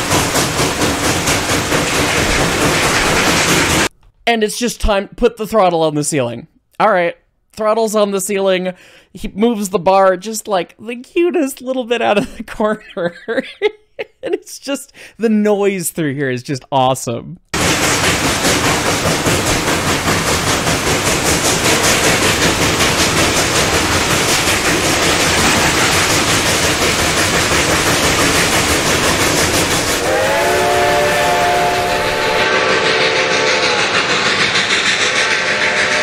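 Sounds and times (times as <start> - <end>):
steam locomotive exhaust beat: 0.0 - 3.9, 17.6 - 36.0
steam locomotive whistle: 30.0 - 36.0.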